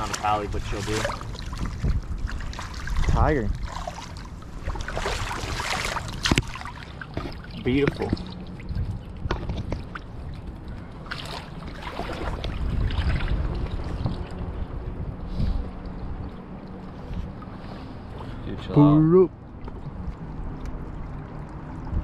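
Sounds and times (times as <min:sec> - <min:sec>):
creek water running over stones: 0:00.0 - 0:08.6
net splashing in water: 0:00.0 - 0:08.7, 0:11.0 - 0:14.2
wind rumbling on microphone: 0:00.0 - 0:22.0.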